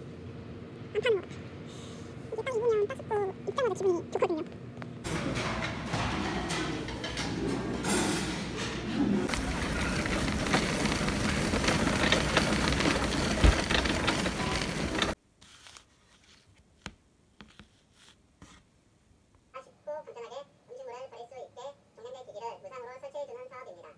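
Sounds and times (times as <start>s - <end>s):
small clatters and rattles: 5.1s - 15.2s.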